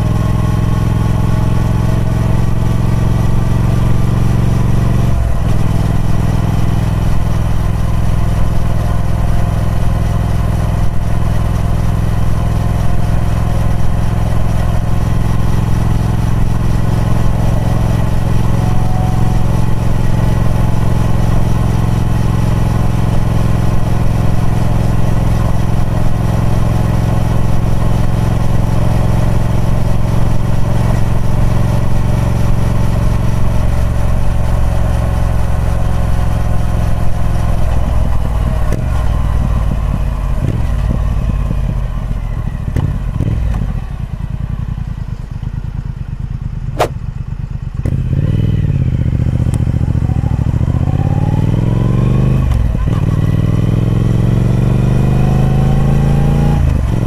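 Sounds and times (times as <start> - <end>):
motorcycle engine running steadily: 0.0 - 57.0.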